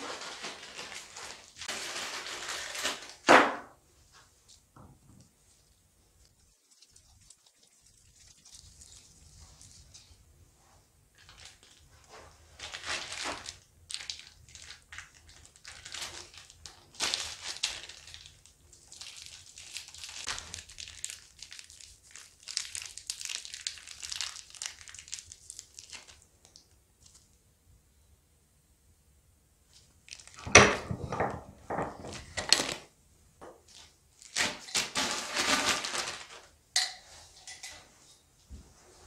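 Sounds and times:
plastic film crinkling: 0:00.0 - 0:03.4, 0:11.1 - 0:27.3, 0:29.7 - 0:30.6, 0:31.8 - 0:32.9, 0:33.6 - 0:36.6.

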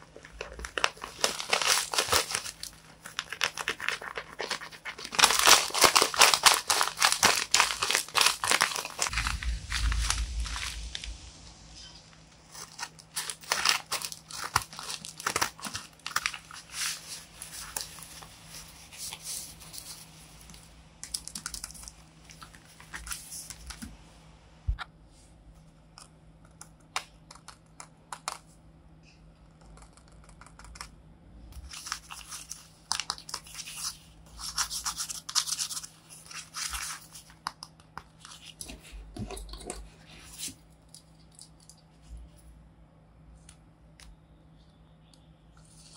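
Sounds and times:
paper and tape crinkling: 0:00.0 - 0:11.0, 0:12.4 - 0:23.9, 0:31.6 - 0:42.1
stiff paper cards handled: 0:12.5 - 0:20.1
scissors snipping paper bag: 0:12.6 - 0:17.0.

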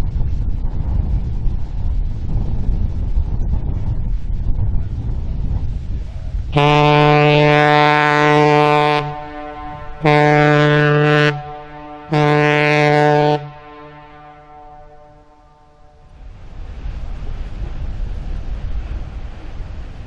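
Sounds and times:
wind rumble on microphone: 0:00.0 - 0:20.0
ship horn blasts: 0:06.5 - 0:16.1.

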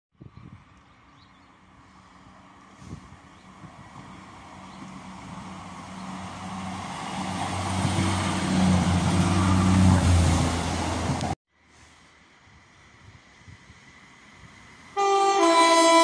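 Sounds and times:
passenger train passing: 0:01.5 - 0:11.4, 0:13.3 - 0:16.0.

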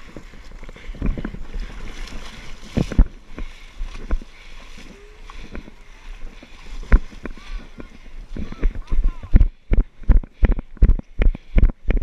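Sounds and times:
splashing in muddy water: 0:00.0 - 0:09.6.

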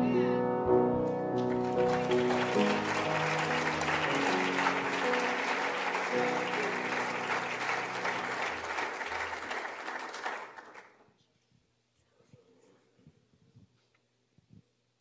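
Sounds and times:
grand piano playing gospel: 0:00.0 - 0:10.7
congregation applauding: 0:01.4 - 0:11.0.

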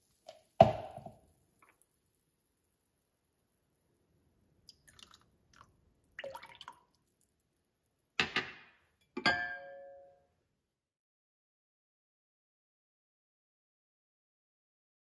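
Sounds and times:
glass bowl knocking on surface: 0:00.6 - 0:01.1, 0:09.2 - 0:10.1
liquid trickling and dripping: 0:04.6 - 0:07.9.

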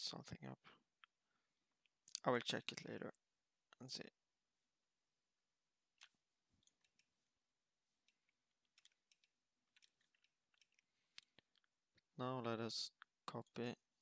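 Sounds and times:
computer mouse clicks: 0:06.0 - 0:07.1, 0:08.0 - 0:11.7.

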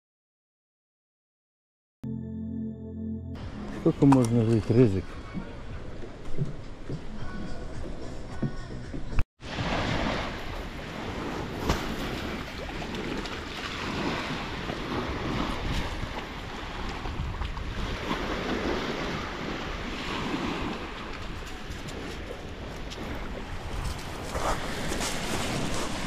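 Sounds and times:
sea surf washing on shore: 0:09.4 - 0:26.0
wind buffeting microphone: 0:09.5 - 0:26.0.

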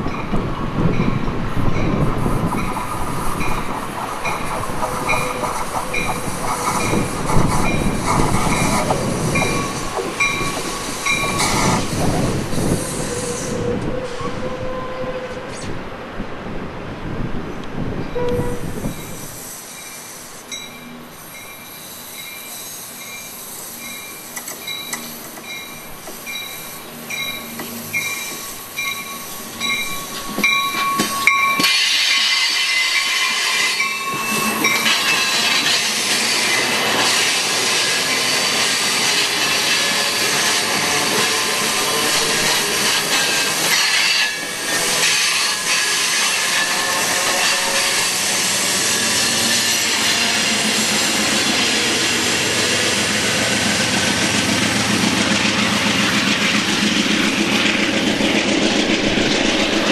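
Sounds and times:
grade-crossing bell dinging: 0:00.0 - 0:02.8, 0:03.4 - 0:11.5, 0:18.0 - 0:36.8
train wheels rumbling on rails: 0:00.0 - 0:59.9.

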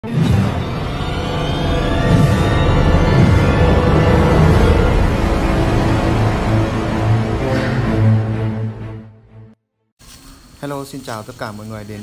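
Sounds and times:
dramatic music with heavy bass: 0:00.0 - 0:09.5.

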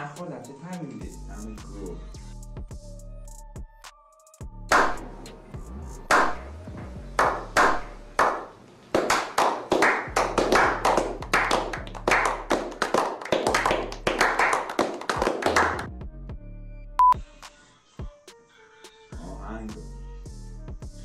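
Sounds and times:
men clapping hands: 0:04.7 - 0:05.0, 0:06.1 - 0:06.4, 0:07.2 - 0:15.9.

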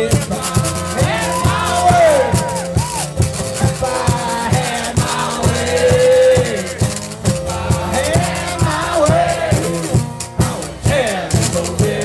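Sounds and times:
man singing: 0:00.0 - 0:02.7, 0:03.4 - 0:12.0
strummed acoustic guitar: 0:00.0 - 0:12.0.

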